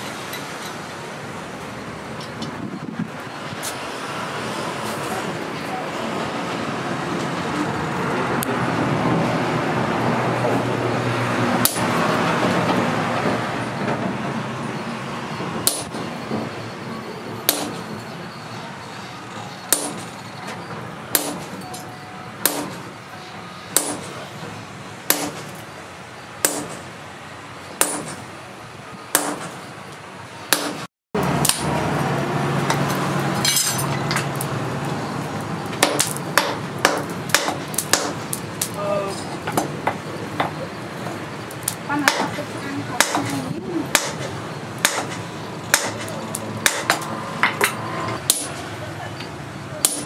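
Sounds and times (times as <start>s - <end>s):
sledgehammer ringing on hot steel: 15.6s - 16.0s, 19.7s - 20.2s, 43.0s - 48.7s.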